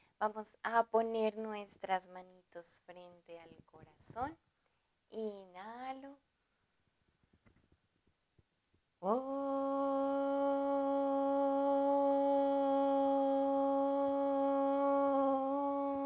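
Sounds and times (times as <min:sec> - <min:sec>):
woman chanting om: 0:09.0 - 0:16.0.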